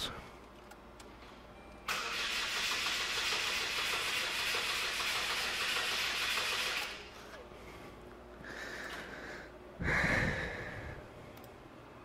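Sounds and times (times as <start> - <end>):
engine cranking without starting: 1.9 - 7.0.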